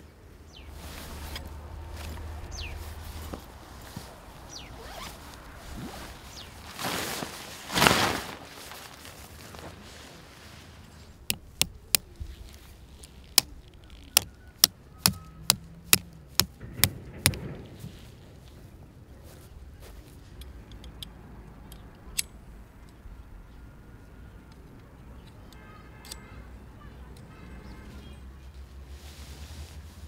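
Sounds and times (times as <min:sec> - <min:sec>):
sharp clicks: 0:11.3 - 0:12.2, 0:20.4 - 0:23.0.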